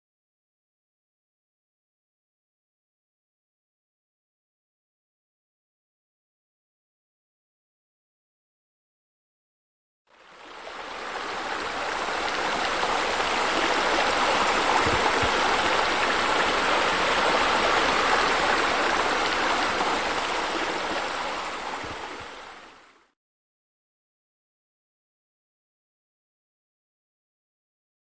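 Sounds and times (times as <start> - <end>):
splashing running water: 11.0 - 22.7.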